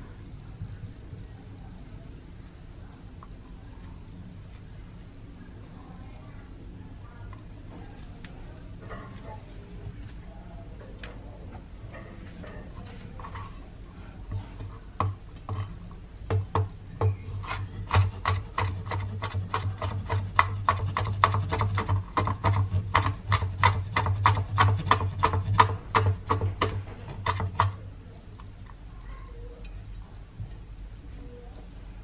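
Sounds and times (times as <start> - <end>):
knife chopping on cutting board: 16.3 - 27.8.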